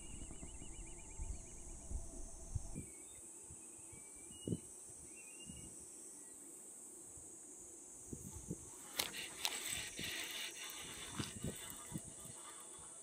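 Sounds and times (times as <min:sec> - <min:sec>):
faint chirps: 0:00.0 - 0:06.4
high-pitched insect chorus: 0:00.0 - 0:13.0.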